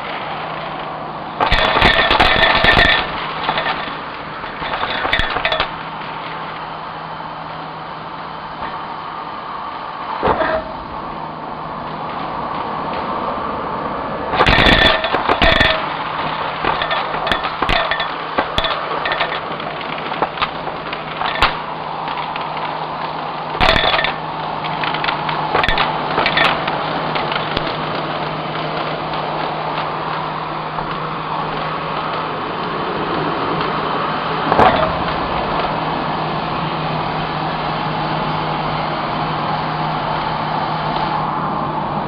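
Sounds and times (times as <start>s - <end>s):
debris crunching in vacuum: 1.4s - 6.7s, 14.3s - 32.4s.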